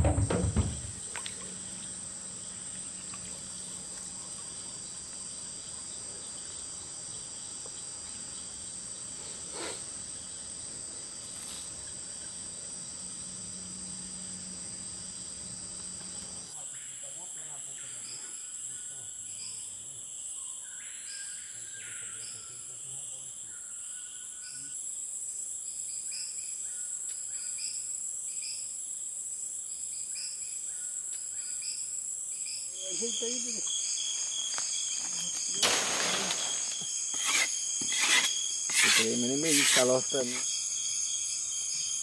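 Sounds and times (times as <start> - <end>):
insect chorus shrilling: 0.0 - 42.0
machete chopping wood: 35.6 - 39.9
person speaking: 38.8 - 40.4.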